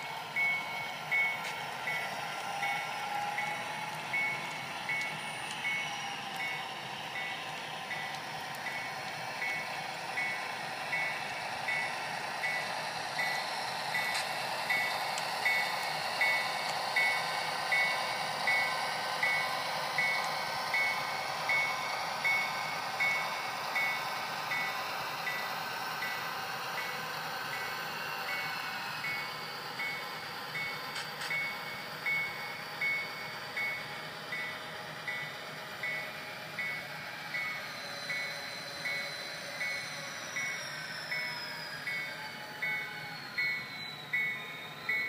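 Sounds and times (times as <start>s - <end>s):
model locomotive bell ringing: 0.0s - 45.0s
model train engine hum: 0.0s - 45.0s.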